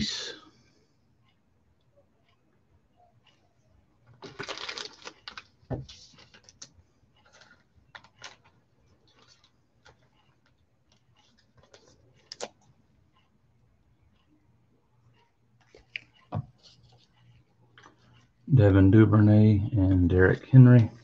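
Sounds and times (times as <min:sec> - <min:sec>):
plastic rustling: 0:04.1 - 0:12.6.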